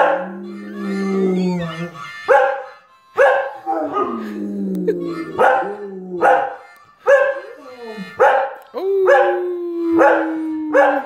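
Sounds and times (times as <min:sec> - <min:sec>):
dogs barking: 0:00.0 - 0:00.5, 0:02.3 - 0:04.3, 0:05.0 - 0:09.4, 0:10.0 - 0:11.0
dogs howling: 0:00.0 - 0:02.1, 0:03.6 - 0:06.6, 0:07.3 - 0:11.0
harmonica ringtone: 0:00.0 - 0:10.8.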